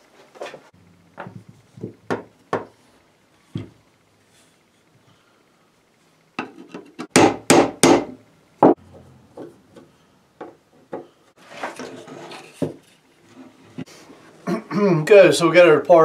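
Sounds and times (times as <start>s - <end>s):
metal knocking on wood: 1.2s - 2.7s
scraping and rubbing: 11.4s - 14.4s.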